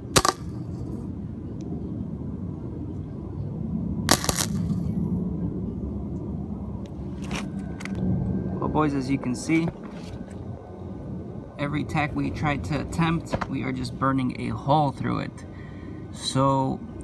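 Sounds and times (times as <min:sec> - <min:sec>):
arc welder crackle: 0:00.0 - 0:00.4, 0:04.1 - 0:04.8
low rumble: 0:00.0 - 0:17.0.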